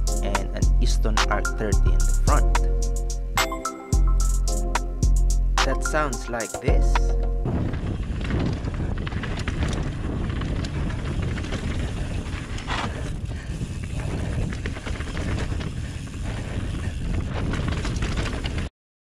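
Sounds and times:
wind rumble on microphone: 0:06.8 - 0:18.7
bike hub freewheel buzzing: 0:07.6 - 0:18.7
tyres on dirt: 0:07.6 - 0:18.7
person breathing: 0:10.8 - 0:17.2.

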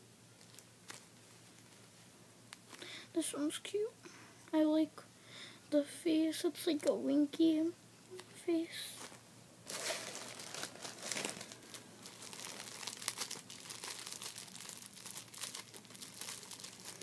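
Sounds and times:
plastic wrapper crinkling: 0:00.4 - 0:01.9, 0:08.9 - 0:17.0.

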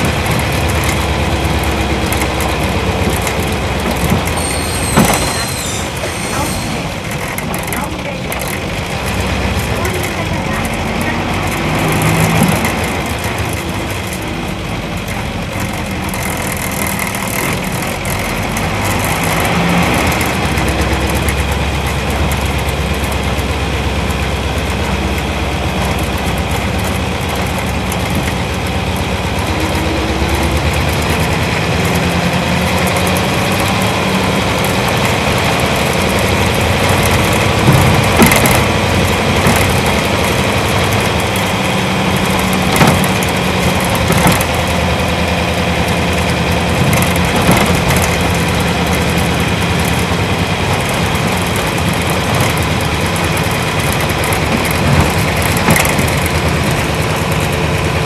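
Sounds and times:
bus diesel engine running: 0:00.0 - 0:58.0
short knocks or rattles: 0:42.1 - 0:44.9.

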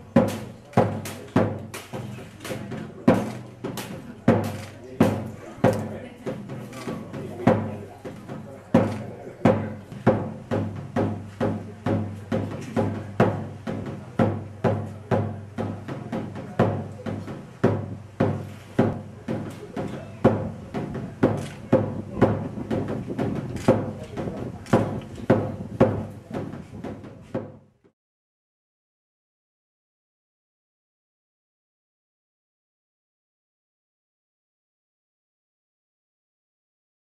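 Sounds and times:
drum steady beat: 0:00.0 - 0:27.9.

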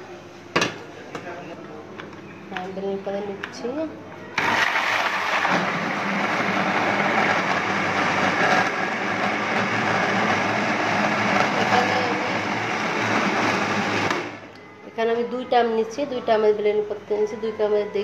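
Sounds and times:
blender running: 0:04.4 - 0:14.4.

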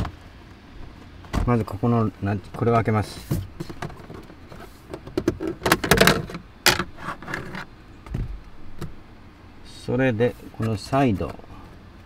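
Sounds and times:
plastic cover clicking and rattling: 0:03.6 - 0:07.6.

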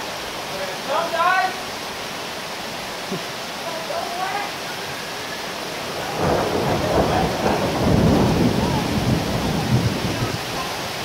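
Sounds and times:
heavy rain: 0:00.0 - 0:11.0
thunder rumbling: 0:05.8 - 0:11.0.

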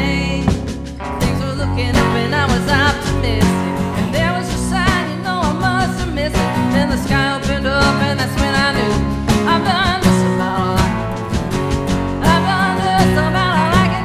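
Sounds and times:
bass guitar: 0:00.0 - 0:14.0
electric guitar: 0:00.0 - 0:14.0
strummed acoustic guitar: 0:00.0 - 0:14.0
hand drum steady beat: 0:00.4 - 0:02.7.

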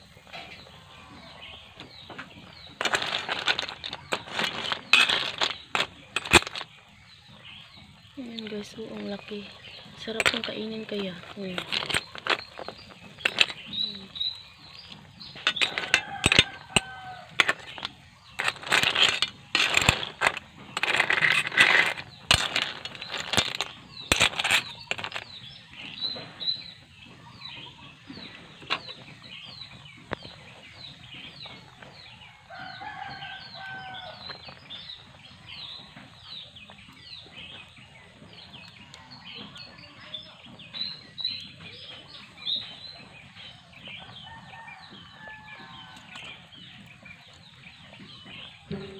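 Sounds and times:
chicks peeping: 0:10.7 - 0:17.3.

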